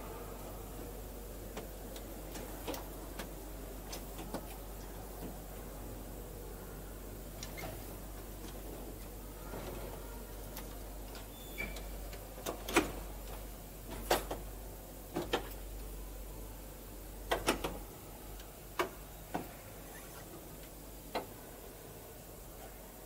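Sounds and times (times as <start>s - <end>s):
low steady hum: 0.0s - 23.0s
organ console mechanical clicks: 17.2s - 19.5s.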